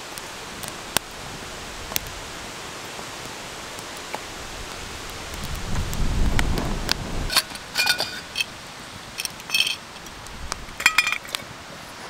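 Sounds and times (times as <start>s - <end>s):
fire popping: 0.0s - 11.5s
campfire crackling: 0.0s - 12.0s
steady hiss: 0.0s - 12.0s
stick rustling: 9.2s - 11.5s.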